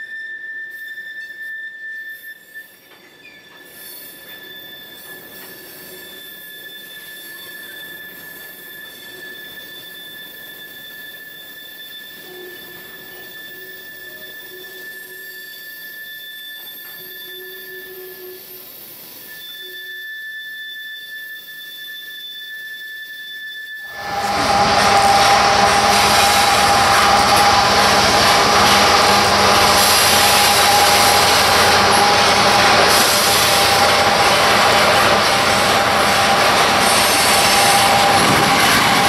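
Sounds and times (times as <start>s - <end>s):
lower wheel squeal: 0.0s - 39.0s
train wheels squealing on rails: 0.0s - 39.0s
freight cars rumbling: 23.9s - 39.0s.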